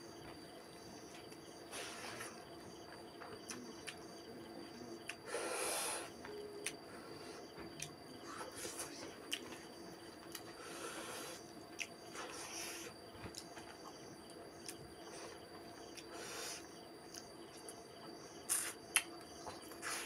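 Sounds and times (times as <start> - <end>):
faint steady hum: 0.0 - 20.0
hissing breaths: 1.1 - 2.6, 4.7 - 9.2, 10.4 - 13.1, 15.0 - 16.9, 19.6 - 20.0
wet chewing clicks and smacks: 11.6 - 12.2, 14.5 - 14.9, 17.0 - 17.8, 18.5 - 19.9.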